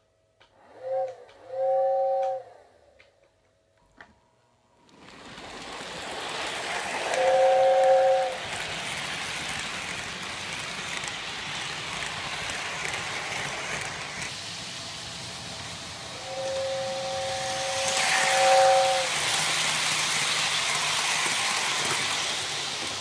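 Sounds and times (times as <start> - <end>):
two-note train whistle: 0.6 - 3.0, 7.1 - 8.4, 16.2 - 19.4
model train wheels rumbling: 4.8 - 23.0.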